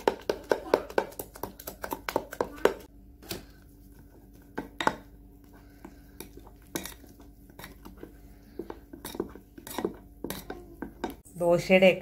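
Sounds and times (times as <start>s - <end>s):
metal spoon scraping glass bowl: 9.0s - 11.1s.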